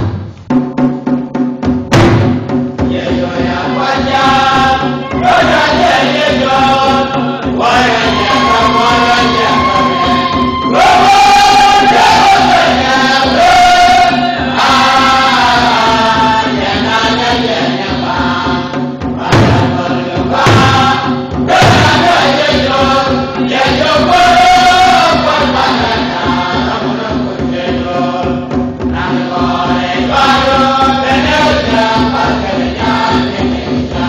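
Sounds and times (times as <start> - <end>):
low thumps: 0.0 - 3.6
choir singing a hymn: 2.8 - 34.0.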